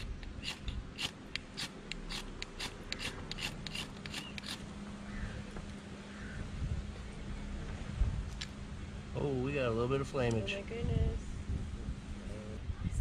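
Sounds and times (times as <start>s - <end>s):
knife scraping flint rod: 0.0s - 4.6s.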